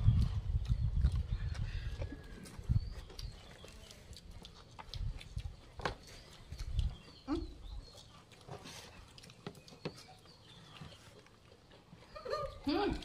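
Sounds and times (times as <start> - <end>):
clicks and taps of eating: 3.0 - 10.3.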